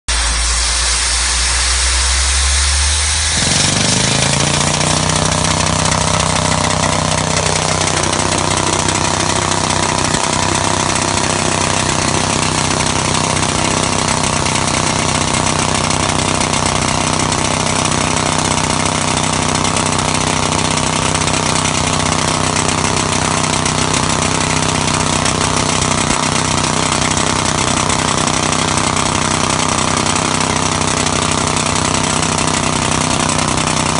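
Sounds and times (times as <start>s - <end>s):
machine engine note: 0.1s - 33.9s
pneumatic jackhammer drill: 0.1s - 33.9s.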